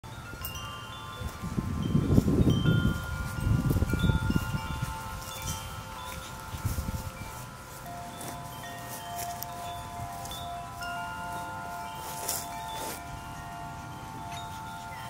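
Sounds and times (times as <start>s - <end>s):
metal wind chimes ringing: 0.0s - 15.0s
wind rumble on microphone: 0.0s - 15.0s.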